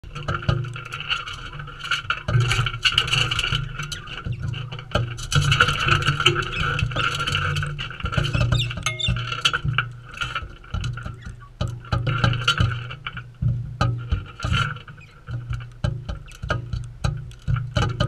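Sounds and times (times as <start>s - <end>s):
beaks and claws tapping on dish: 3.6s - 18.0s.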